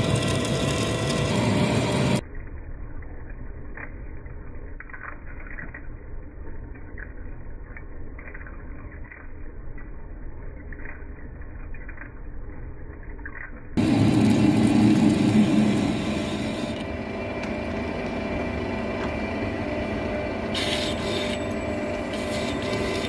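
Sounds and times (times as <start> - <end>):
lathe running: 0.0 - 2.2, 13.8 - 23.0.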